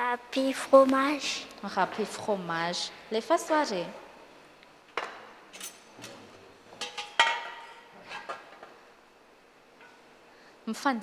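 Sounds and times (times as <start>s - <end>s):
utensils clinking on metal bowls: 5.5s - 8.4s.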